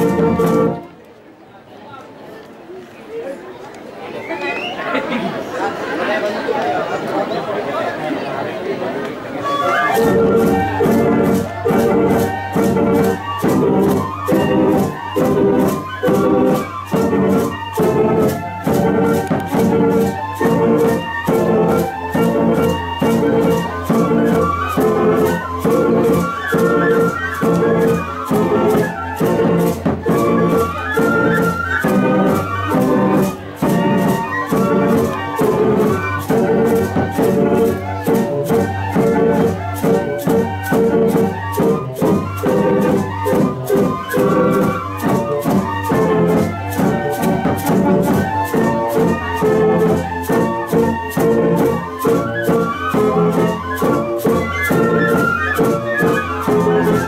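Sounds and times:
bamboo ensemble playing: 0.0s - 1.1s, 9.0s - 57.0s.

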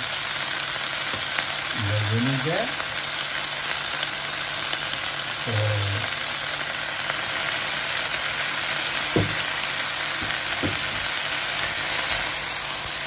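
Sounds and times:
vegetables sizzling in oil: 0.0s - 13.0s
spoon knocking against pan: 9.1s - 9.5s, 10.2s - 11.1s.

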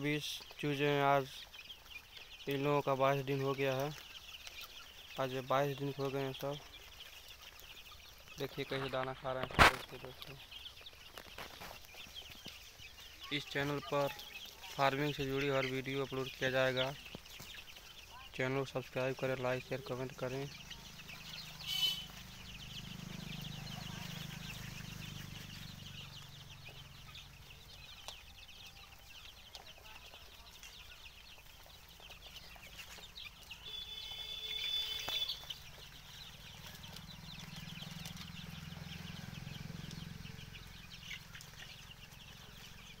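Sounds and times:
chicks cheeping: 0.0s - 43.0s
chick calling loudly: 20.8s - 22.4s, 33.6s - 35.7s.

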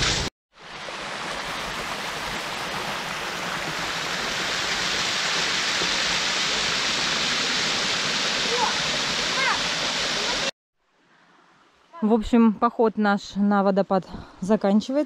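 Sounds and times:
waterfall splashing over rock: 0.0s - 10.5s.

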